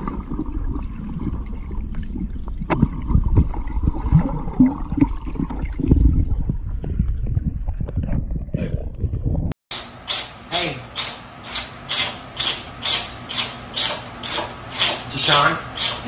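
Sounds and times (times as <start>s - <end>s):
underwater gurgling and bubbling: 0.0s - 9.5s
underwater knocks and clicks: 0.0s - 9.5s.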